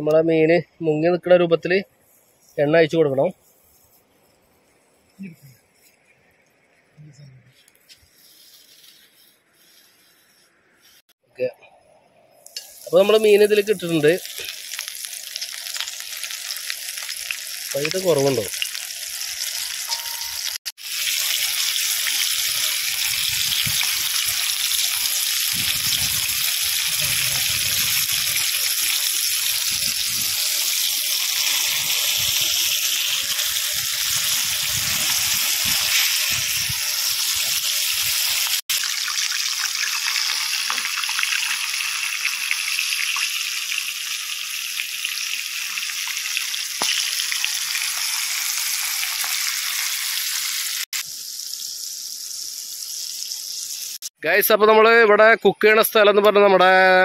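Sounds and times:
fish sizzling in hot oil: 0:12.4 - 0:54.2.

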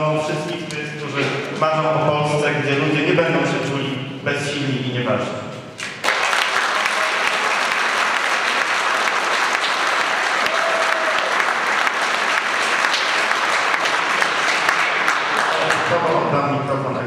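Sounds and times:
audience applauding: 0:05.8 - 0:16.2.

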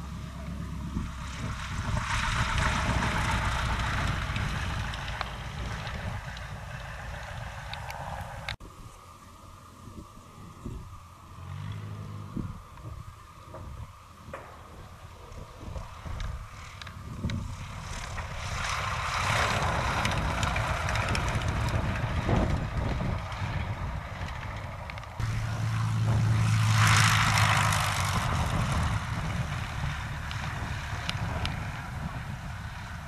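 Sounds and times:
light aircraft engine and propeller: 0:00.0 - 0:33.0.

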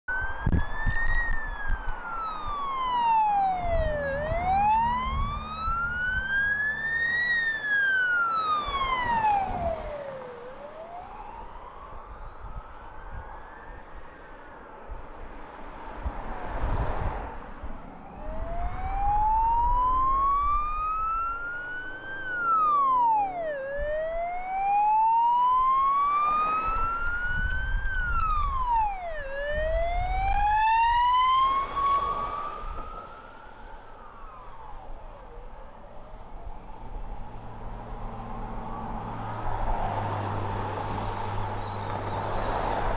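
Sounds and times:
ambulance siren wailing: 0:00.1 - 0:15.4, 0:17.4 - 0:42.9
road noise of vehicles passing: 0:00.1 - 0:42.9
low engine hum: 0:00.2 - 0:12.3.

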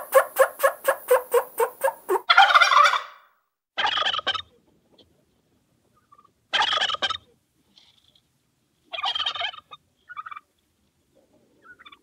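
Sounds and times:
turkey gobbling: 0:00.0 - 0:03.2, 0:03.8 - 0:04.5, 0:06.0 - 0:07.2, 0:08.9 - 0:10.5, 0:11.6 - 0:12.0.

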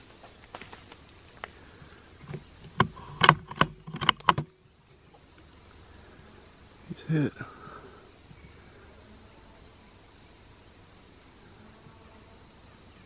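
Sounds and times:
rifle bolt being worked: 0:02.2 - 0:04.5.

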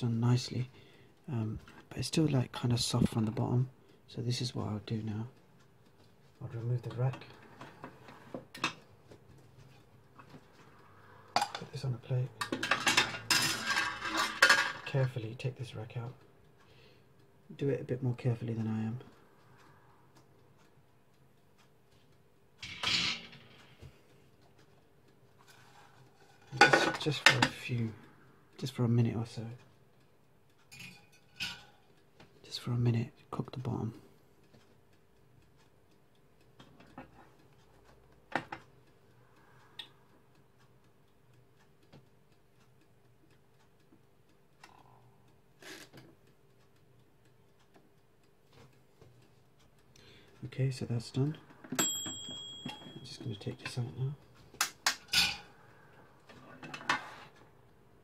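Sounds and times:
multi cooker humming: 0:10.9 - 0:15.2, 0:51.0 - 0:53.4.

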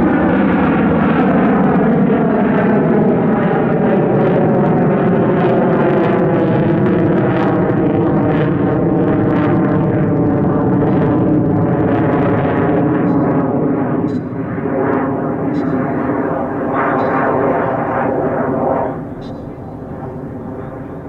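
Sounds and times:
loud crackling jet noise: 0:00.0 - 0:21.0.

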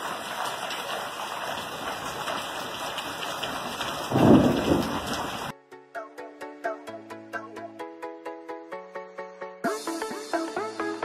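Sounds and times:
rain falling: 0:00.0 - 0:05.5
thunder rumble: 0:01.6 - 0:05.5.

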